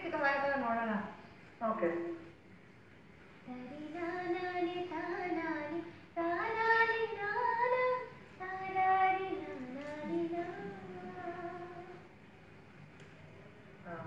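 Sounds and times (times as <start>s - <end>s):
person singing through tv speaker: 3.5s - 12.1s.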